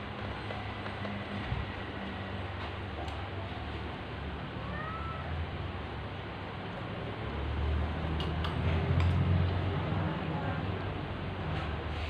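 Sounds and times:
cat meowing: 4.6 - 5.4.

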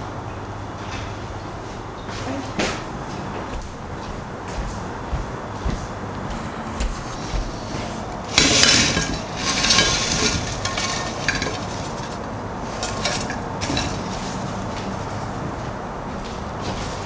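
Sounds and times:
chips scraping and clattering: 8.3 - 14.4
chips clicking onto platter: 8.4 - 14.1.

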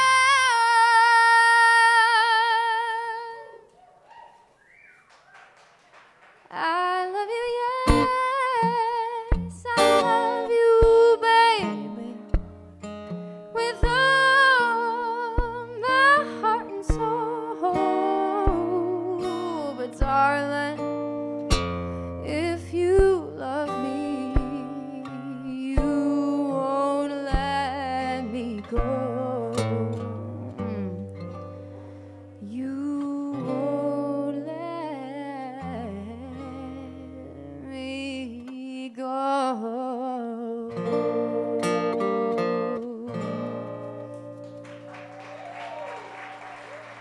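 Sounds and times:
woman singing slow blues: 0.0 - 3.7, 6.5 - 12.7, 13.5 - 44.4
acoustic guitar: 0.0 - 3.8, 6.4 - 47.0.

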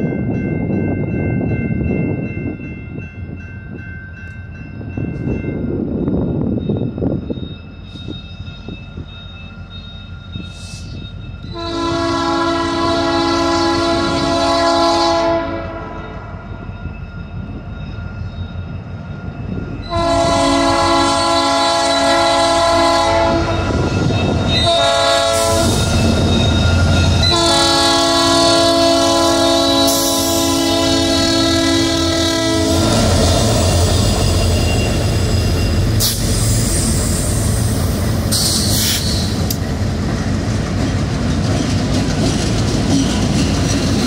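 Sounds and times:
train wheels on rails: 0.0 - 44.0
locomotive air horn: 11.5 - 16.2, 19.9 - 23.8, 24.6 - 26.0, 27.2 - 33.9.

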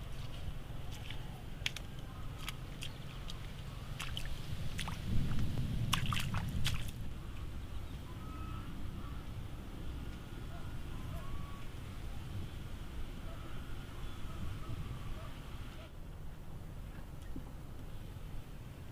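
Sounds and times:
bare feet squelching in mud puddle: 0.0 - 7.0
splashing water: 0.0 - 7.1.

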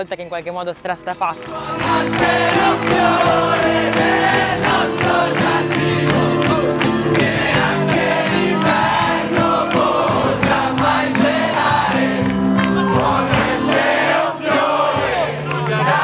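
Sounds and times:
group of voices singing: 1.4 - 16.0.

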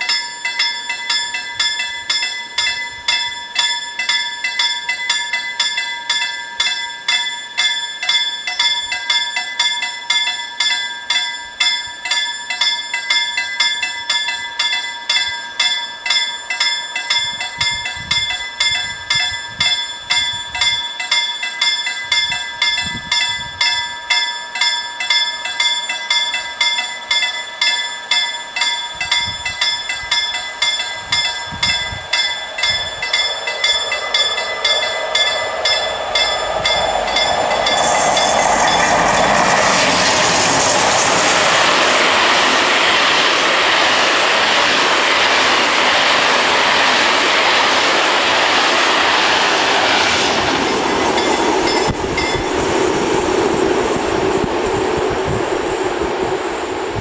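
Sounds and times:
level crossing bells ringing: 0.0 - 40.2, 50.5 - 52.5
low rumbles: 29.1 - 57.0.

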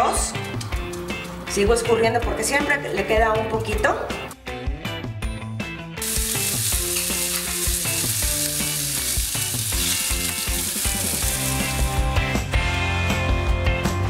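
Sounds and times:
rice sizzling in hot oil: 6.0 - 12.4.

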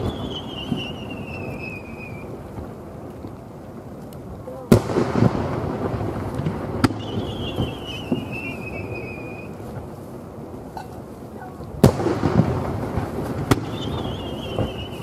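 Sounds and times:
firework whistle: 0.0 - 2.4, 6.8 - 9.7, 13.4 - 15.0.

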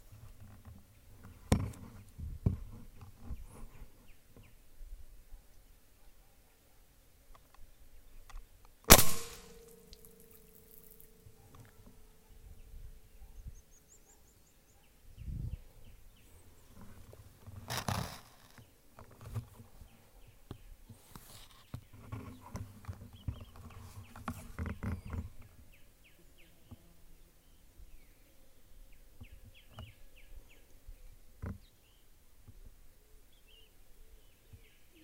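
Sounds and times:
faint bird chirps: 9.7 - 16.9
rustling through vegetation: 15.8 - 25.7.

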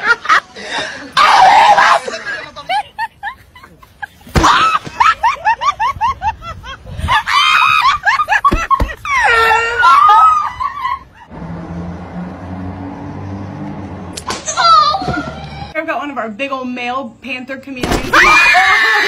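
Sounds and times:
shrieks and wavering yell: 1.2 - 2.2, 9.0 - 11.2, 18.1 - 19.0
high-pitched laughter: 1.2 - 11.3, 18.3 - 19.0.

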